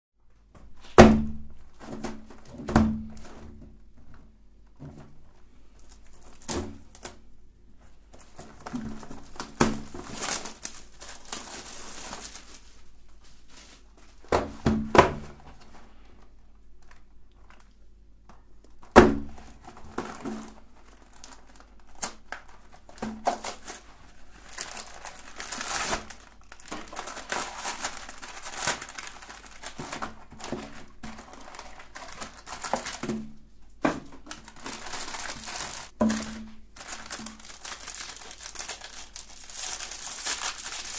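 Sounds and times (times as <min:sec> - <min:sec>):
foil packs crinkling: 0:05.8 - 0:07.2, 0:08.0 - 0:15.8, 0:18.7 - 0:40.9
cardboard tearing: 0:08.4 - 0:12.7, 0:24.5 - 0:33.1, 0:34.3 - 0:40.9.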